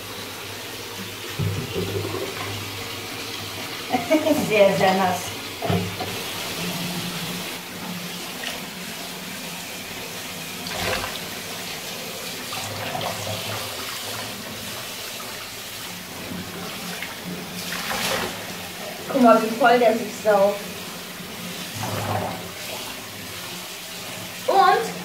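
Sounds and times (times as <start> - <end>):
running water: 0.0 - 25.0.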